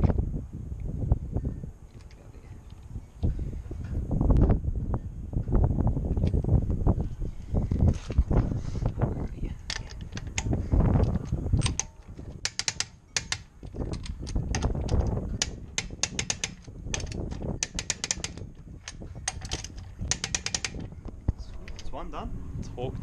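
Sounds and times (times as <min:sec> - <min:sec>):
low rumble: 0:00.0 - 0:12.5, 0:18.3 - 0:23.0
socket ratchet clicking: 0:09.7 - 0:21.0.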